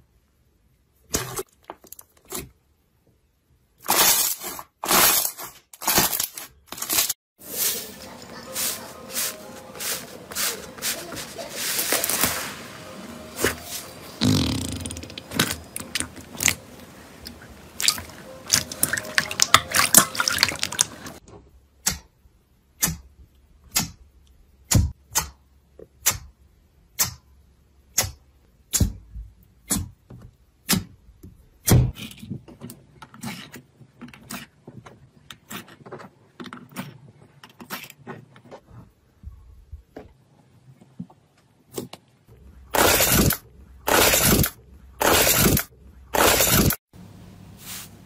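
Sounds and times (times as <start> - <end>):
slime squelching: 14.2 - 21.2.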